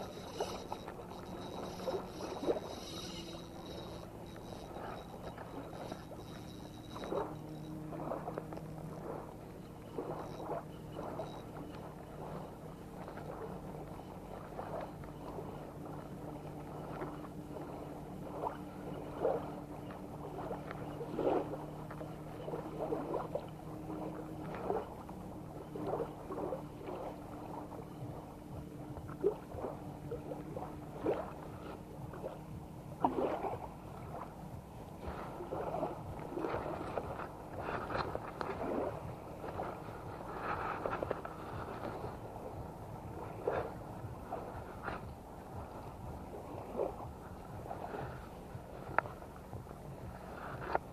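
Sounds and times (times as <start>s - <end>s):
faint low hum: 0.0s - 50.9s
water lapping at shoreline: 0.0s - 50.9s
small water splashes: 29.0s - 34.4s.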